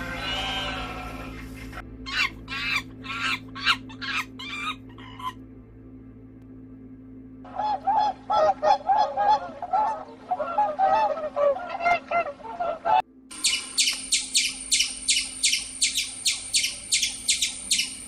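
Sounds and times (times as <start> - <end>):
waterfowl honking: 0.0 - 5.4, 7.5 - 18.0
squirrel chirping: 13.3 - 18.0.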